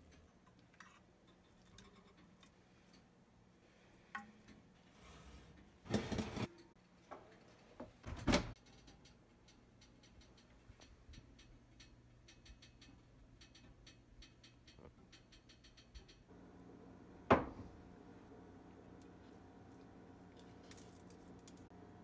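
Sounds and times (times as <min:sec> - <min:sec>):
oven rack scraping: 0:04.9 - 0:06.5.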